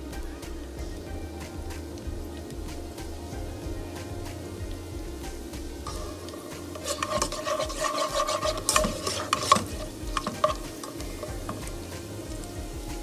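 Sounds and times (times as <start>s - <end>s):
garlic sizzling in oil: 0.0s - 13.0s
spatula scraping frying pan: 4.0s - 12.5s.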